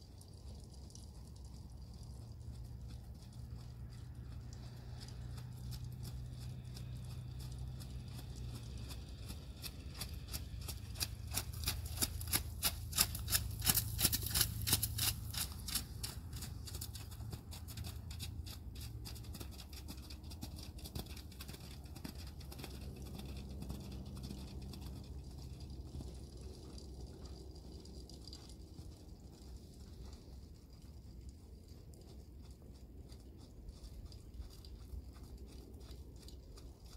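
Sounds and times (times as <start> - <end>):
low rumble: 0.0 - 19.2
horse hooves trotting on slush: 0.0 - 36.9.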